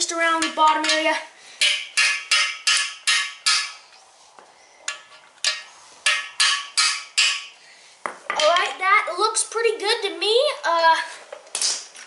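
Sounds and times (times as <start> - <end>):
hammer striking metal: 1.6 - 3.9, 4.9 - 7.6.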